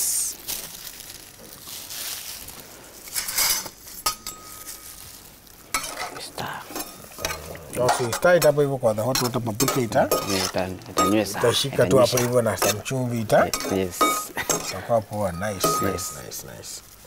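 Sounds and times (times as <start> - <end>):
food sizzling: 0.0 - 17.0
spoon scraping and clinking bowl: 5.7 - 11.3, 11.9 - 16.4.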